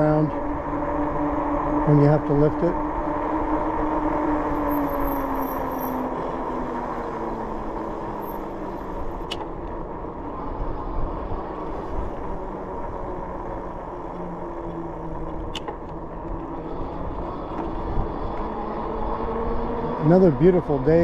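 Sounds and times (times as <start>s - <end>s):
bike tires humming on pavement: 0.0s - 21.0s
sharp click: 9.2s - 9.5s, 15.5s - 15.8s.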